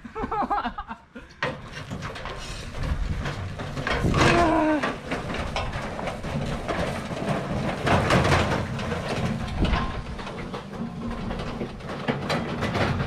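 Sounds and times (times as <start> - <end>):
grill cart rattling and clattering: 1.4 - 13.0
short falling groan: 4.0 - 5.0.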